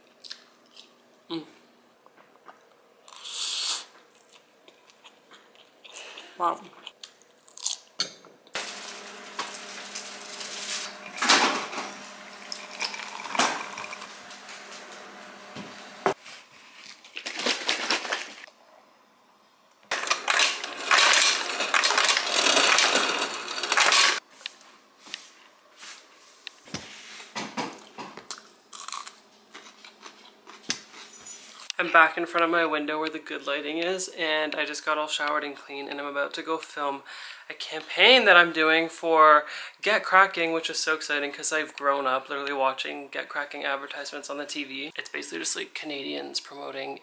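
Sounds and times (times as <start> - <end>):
dishes and utensils clattering: 10.4 - 15.0.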